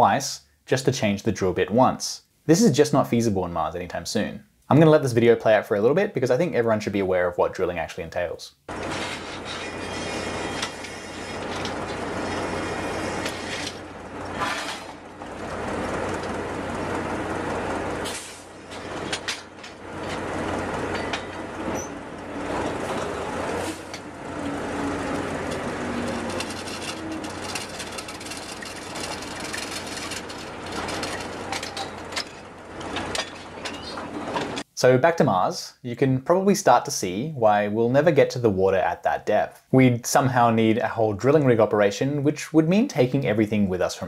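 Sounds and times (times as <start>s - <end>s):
drilling rig machinery humming: 8.7s - 34.6s
metal clanks of pipe: 20.9s - 22.0s.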